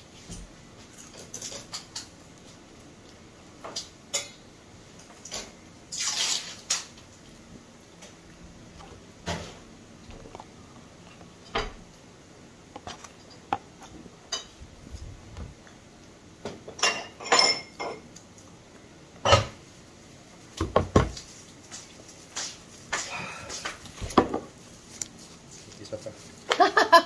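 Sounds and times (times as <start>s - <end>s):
dishes and glassware clinking: 4.1s - 4.4s, 16.7s - 18.1s, 19.2s - 19.6s.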